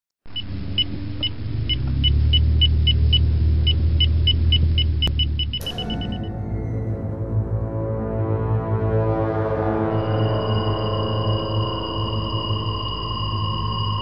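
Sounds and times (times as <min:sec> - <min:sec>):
short high computer beeps: 0:04.4 - 0:06.3, 0:10.1 - 0:14.0
low droning rumble: 0:04.6 - 0:14.0
sustained music tones: 0:05.1 - 0:14.0.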